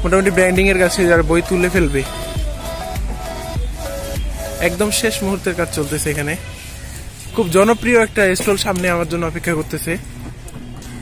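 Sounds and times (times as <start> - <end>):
background music with a beat: 0.0 - 6.3.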